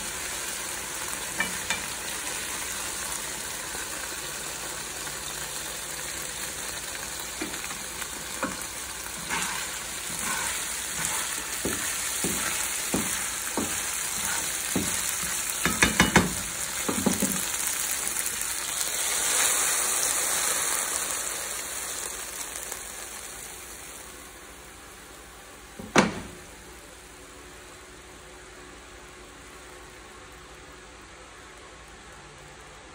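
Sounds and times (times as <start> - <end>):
food sizzling in frying pan: 0.0 - 31.2
utensils tapping pan: 1.3 - 2.0, 7.3 - 17.5.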